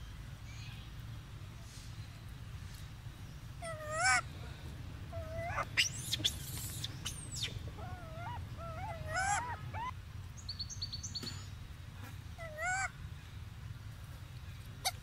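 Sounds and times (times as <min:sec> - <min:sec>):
steady low hum: 0:00.0 - 0:15.0
monkeys coo calling: 0:03.6 - 0:04.2, 0:05.1 - 0:10.0, 0:12.4 - 0:12.9
high squeaks and chirps: 0:05.4 - 0:09.9.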